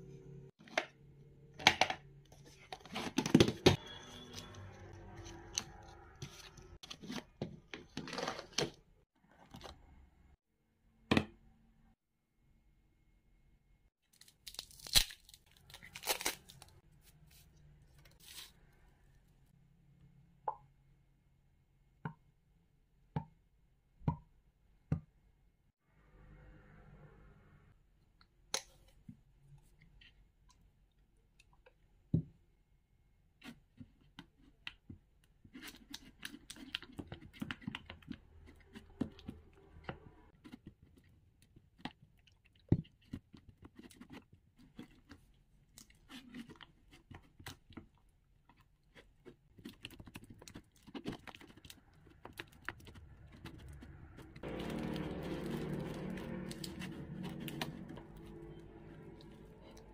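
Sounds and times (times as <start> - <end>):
slime stirred in plastic bowl: 40.4 - 59.9.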